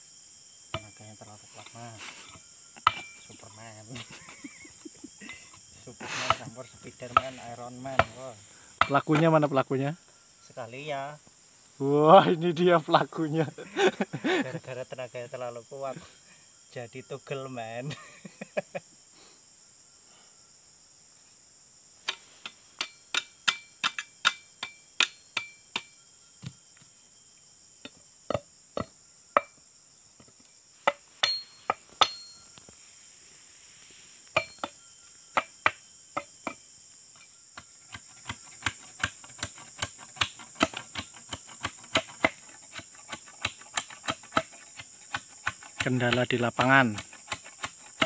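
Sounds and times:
high insect drone: 0.0s - 48.0s
machete chopping wood: 8.8s - 9.3s, 22.8s - 26.6s, 30.8s - 32.4s, 34.4s - 34.8s, 37.6s - 48.0s.

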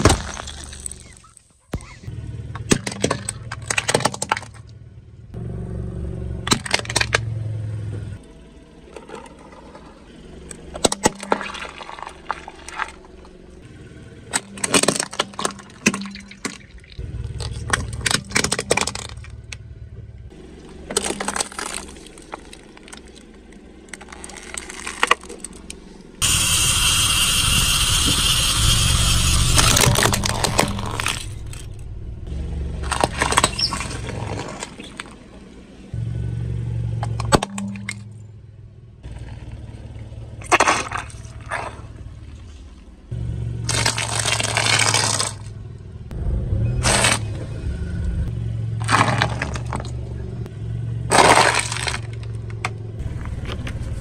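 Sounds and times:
tyre crushing toys with cracks: 0.0s - 2.0s, 2.6s - 4.7s, 6.4s - 7.3s, 14.3s - 19.6s, 20.7s - 25.7s, 29.4s - 31.7s, 32.8s - 35.4s, 40.3s - 42.5s, 43.6s - 45.6s, 46.8s - 47.4s, 48.8s - 50.1s, 51.0s - 54.0s
low rumble of tyre and car: 0.0s - 54.0s.

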